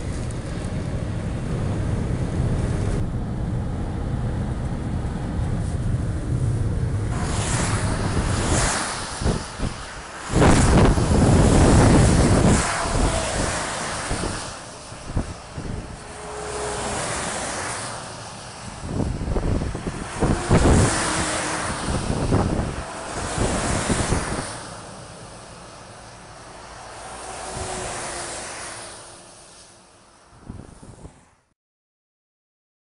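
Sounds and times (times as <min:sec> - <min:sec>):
trucks passing with tyre spray: 0:00.0 - 0:31.5
road and wind rush: 0:00.0 - 0:31.6.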